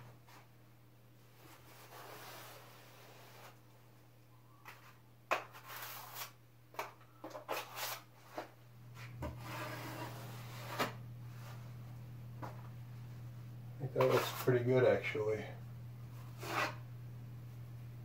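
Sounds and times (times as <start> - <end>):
drywall knife scraping pan: 5.3 - 6.4, 9.2 - 11.0, 14.0 - 14.5, 16.2 - 16.8.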